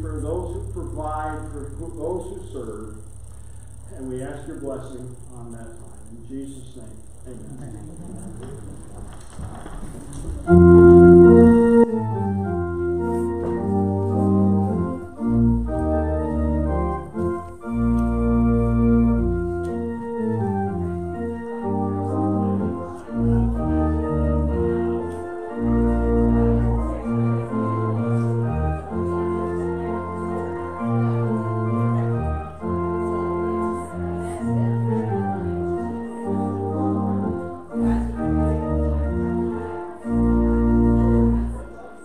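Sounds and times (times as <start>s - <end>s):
organ playing slow chords: 0.0s - 42.0s.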